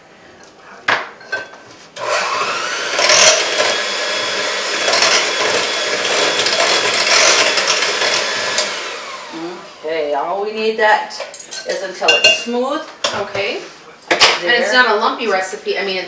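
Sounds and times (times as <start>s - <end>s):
electric hand mixer running: 2.0s - 10.1s.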